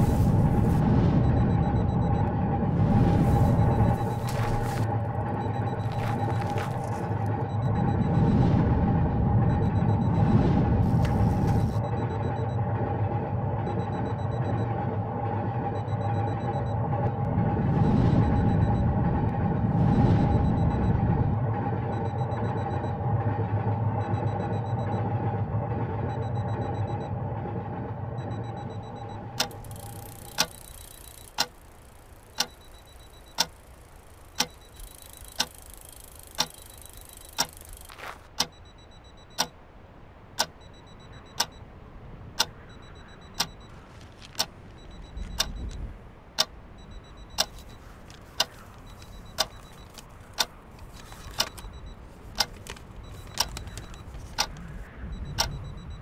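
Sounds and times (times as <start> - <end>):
clock ticking: 3.0 - 8.2, 28.3 - 39.6, 40.4 - 41.6, 42.4 - 43.7, 44.3 - 56.0.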